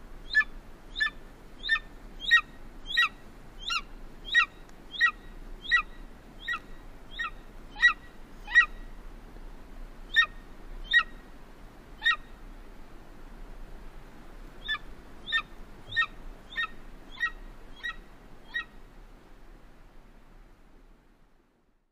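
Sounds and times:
eagle yelping calls: 0.2 - 8.8, 10.1 - 11.2, 12.0 - 12.3, 14.6 - 18.8.

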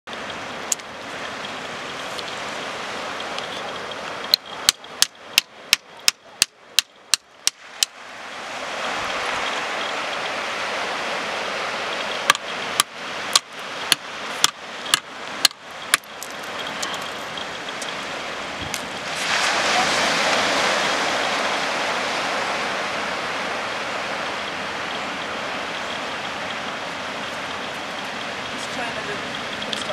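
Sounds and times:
surf rushing: 0.1 - 29.9
hammer tapping rock: 4.3 - 7.9, 12.2 - 17.0.

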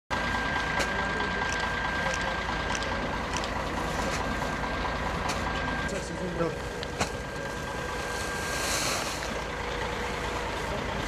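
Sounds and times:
bus engine idling: 0.1 - 11.0
high-pitched whine: 5.6 - 9.6.

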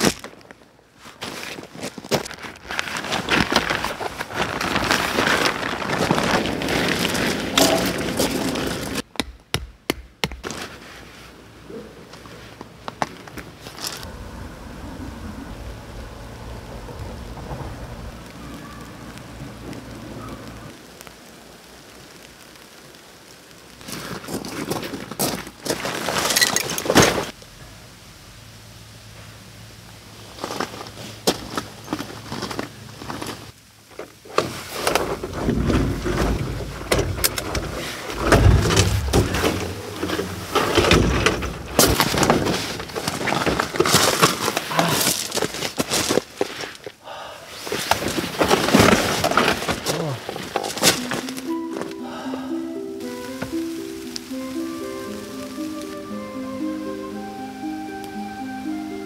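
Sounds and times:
fabric rustling and scraping: 0.0 - 9.0, 10.4 - 11.4, 34.3 - 47.0, 47.6 - 51.6
sleet pattering on a tent: 0.0 - 9.1, 10.4 - 14.2, 15.5 - 27.4, 28.9 - 59.0
low rumble: 13.9 - 20.7, 35.1 - 43.2.

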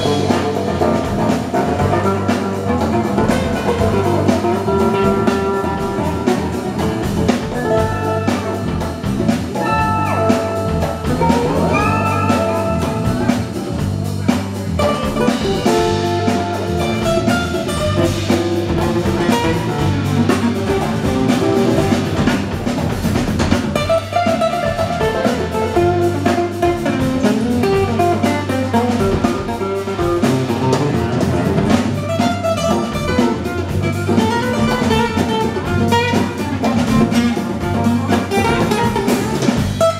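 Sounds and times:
bass guitar line: 0.0 - 39.9
hand drum beat: 0.0 - 39.9
acoustic guitars: 23.5 - 39.9.

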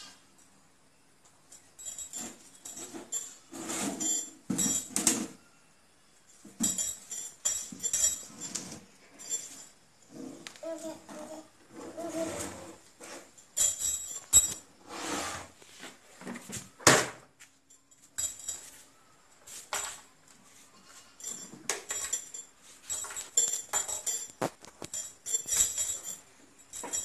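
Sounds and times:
metallic rattles: 1.5 - 5.4, 6.3 - 11.6, 13.0 - 14.8, 17.7 - 20.1, 20.8 - 27.0.

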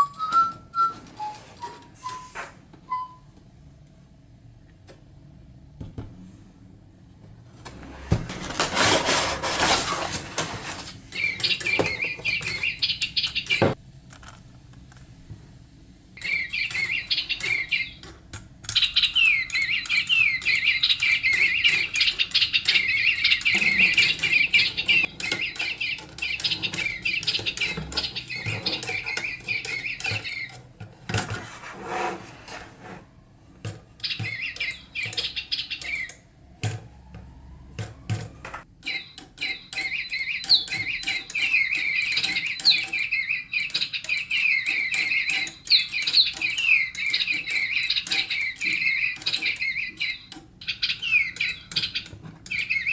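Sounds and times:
electronic toy birds chirping: 0.0 - 3.2, 11.1 - 13.8, 16.2 - 30.6, 34.0 - 36.3, 38.8 - 52.9.

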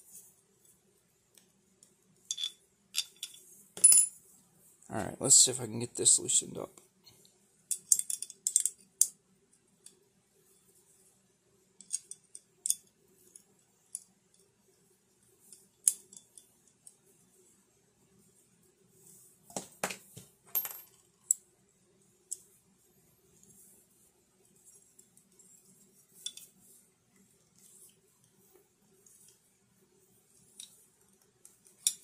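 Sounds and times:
metal parts clicking and clinking: 2.3 - 4.1, 7.7 - 9.1, 11.8 - 14.4, 15.5 - 16.5, 25.0 - 26.8, 30.4 - 32.0.

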